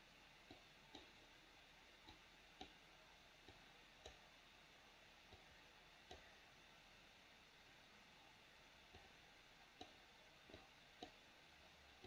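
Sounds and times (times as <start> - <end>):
faint mouse button clicks: 5.3 - 6.3.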